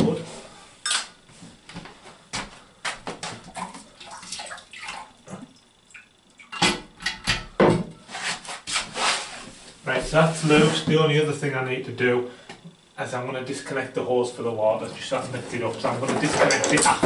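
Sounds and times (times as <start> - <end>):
water splashing: 3.6 - 5.5.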